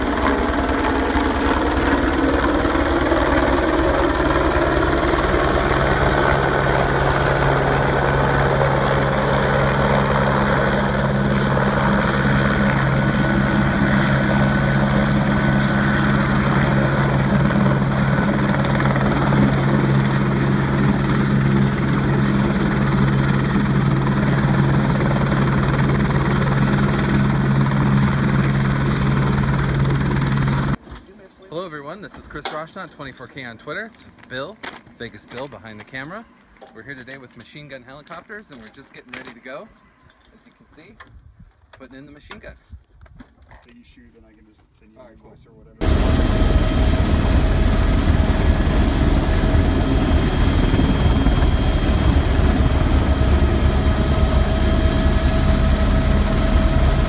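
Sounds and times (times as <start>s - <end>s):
helicopter rotor beating: 0.0s - 30.8s, 45.8s - 57.0s
helicopter turbine noise: 0.0s - 30.8s, 45.8s - 57.0s
low drone: 45.8s - 57.0s.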